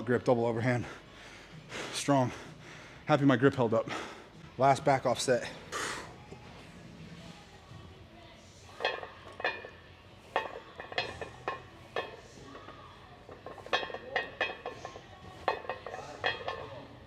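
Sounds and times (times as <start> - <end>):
weight plates clanking: 8.8 - 17.0.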